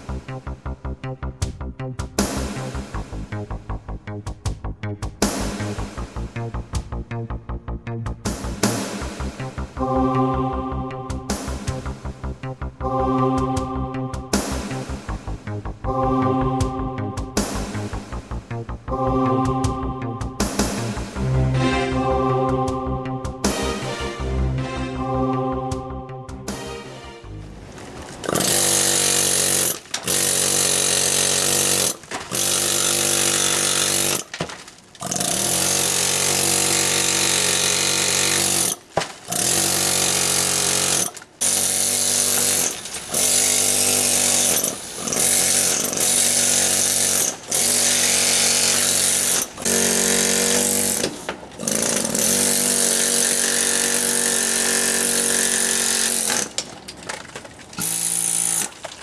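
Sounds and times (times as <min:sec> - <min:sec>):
pneumatic hammer chiselling stone: 0:28.2 - 0:59.0.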